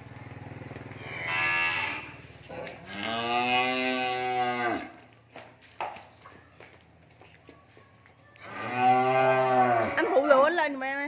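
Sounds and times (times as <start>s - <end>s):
cattle mooing: 1.0s - 5.0s, 8.4s - 10.3s.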